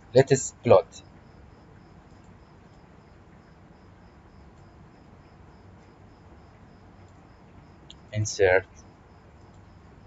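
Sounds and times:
steady low hiss: 0:00.0 - 0:10.0.

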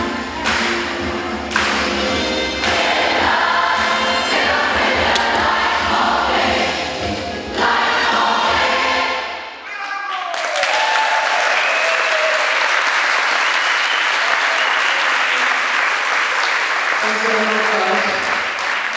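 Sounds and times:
choir singing: 0:02.1 - 0:09.6
loud applause: 0:09.6 - 0:18.9
people cheering: 0:09.6 - 0:18.9.

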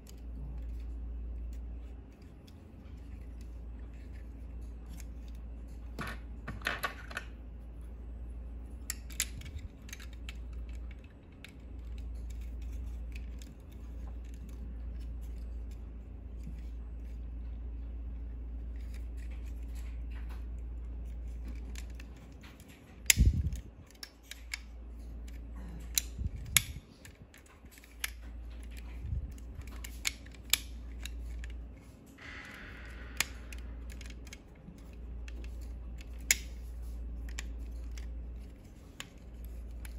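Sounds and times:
low steady hum: 0:00.0 - 0:39.9
plastic toy parts clicking: 0:08.8 - 0:17.2, 0:21.0 - 0:31.8, 0:32.8 - 0:39.9.

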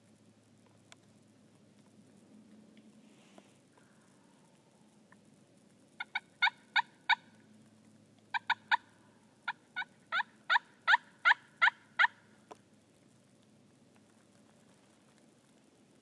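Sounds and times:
turkey yelping: 0:06.0 - 0:07.4, 0:08.3 - 0:12.3.

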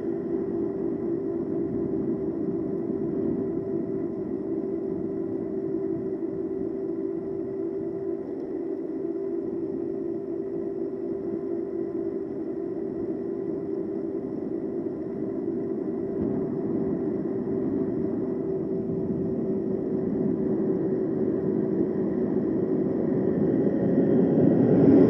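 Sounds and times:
wind noise: 0:00.0 - 0:07.3, 0:16.2 - 0:25.0
electric motor whine: 0:00.0 - 0:25.0.

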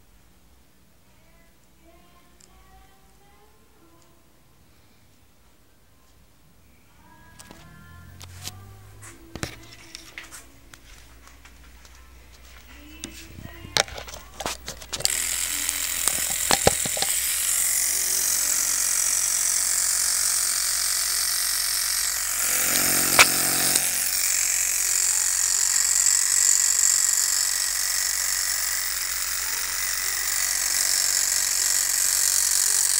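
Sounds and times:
tattoo machine running: 0:12.8 - 0:32.9
sharp clicks: 0:13.0 - 0:17.8.

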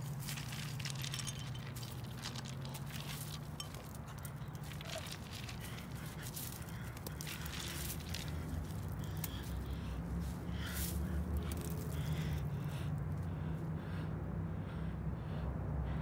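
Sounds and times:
dry twigs crackling: 0:00.0 - 0:12.6
steady low hum: 0:00.0 - 0:16.0.

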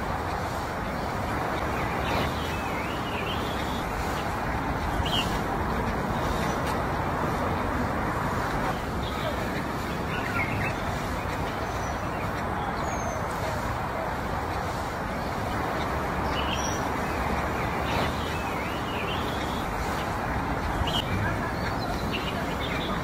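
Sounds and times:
bird chirps: 0:01.6 - 0:04.3, 0:08.7 - 0:13.3, 0:16.2 - 0:23.0.

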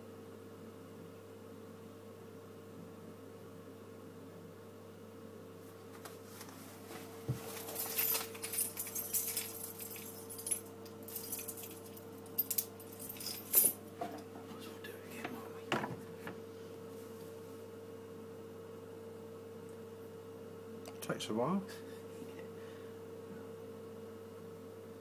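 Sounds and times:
boiler pump humming: 0:00.0 - 0:25.0
light clinks and rustles: 0:07.3 - 0:14.3.

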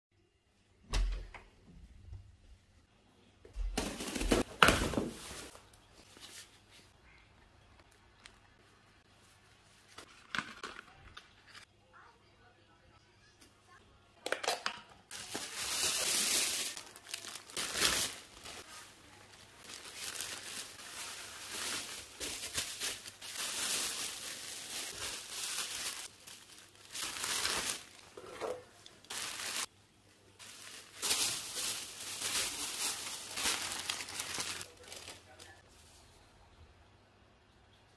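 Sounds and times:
paper and cardboard crinkling: 0:15.1 - 0:29.7, 0:30.4 - 0:35.6.

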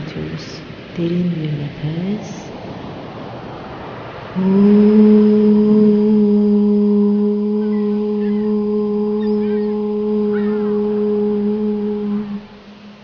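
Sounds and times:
woman chanting a held vowel: 0:04.4 - 0:12.9.

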